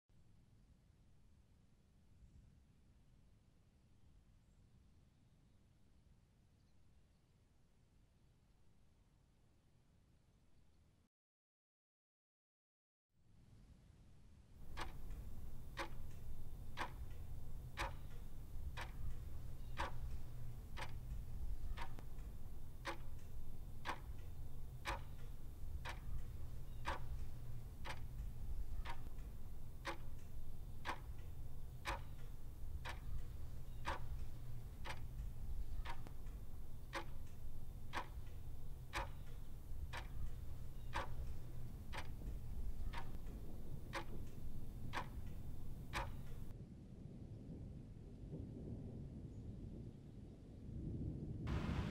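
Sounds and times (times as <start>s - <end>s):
clock ticking: 14.6s - 46.5s
low hum: 14.6s - 49.3s, 50.9s - 51.9s.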